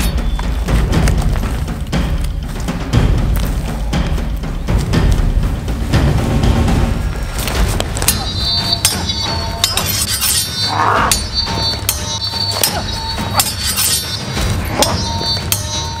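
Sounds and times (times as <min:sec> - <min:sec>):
low steady music: 0:00.0 - 0:16.0
swords clashing and ringing: 0:08.0 - 0:16.0.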